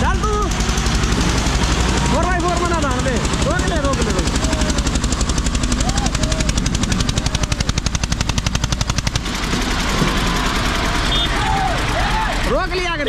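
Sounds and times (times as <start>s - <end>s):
diesel tractor engine running hard: 0.0s - 13.0s
faint shouts: 11.3s - 12.5s.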